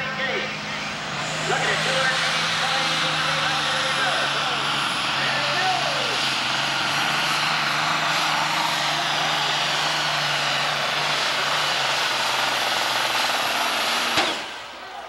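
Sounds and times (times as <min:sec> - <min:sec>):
tractor engine running under load: 0:00.0 - 0:15.0.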